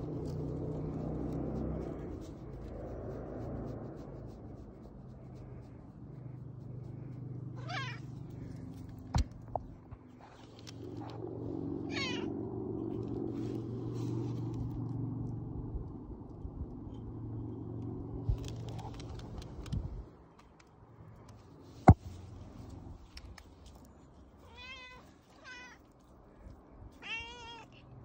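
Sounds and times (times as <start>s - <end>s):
cat meowing: 7.6s - 8.0s, 11.9s - 12.3s, 24.4s - 25.9s, 27.0s - 27.9s.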